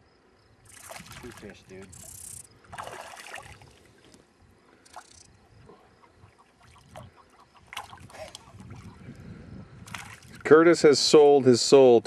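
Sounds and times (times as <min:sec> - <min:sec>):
fish splashing in water: 0:00.7 - 0:01.6, 0:02.7 - 0:04.1, 0:06.2 - 0:08.9, 0:09.8 - 0:10.4.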